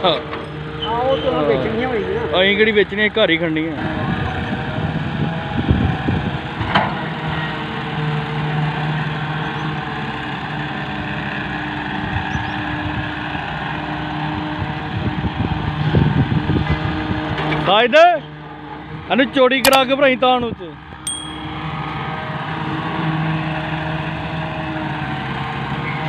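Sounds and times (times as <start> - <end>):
diesel engines running: 0.0 - 26.0.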